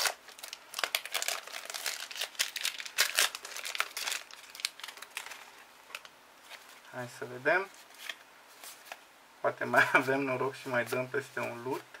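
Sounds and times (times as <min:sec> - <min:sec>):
foil wrapper crinkling: 0:00.0 - 0:06.9.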